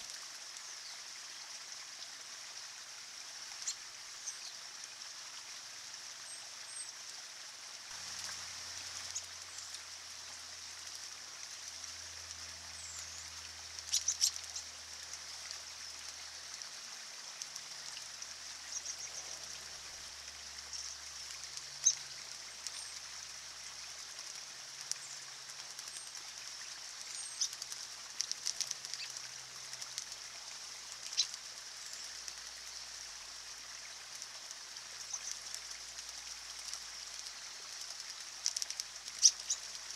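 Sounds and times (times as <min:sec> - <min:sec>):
stream trickling over rocks: 0:00.0 - 0:39.9
birds splashing in water: 0:07.9 - 0:39.9
robins chirping: 0:13.9 - 0:14.6, 0:38.5 - 0:39.7.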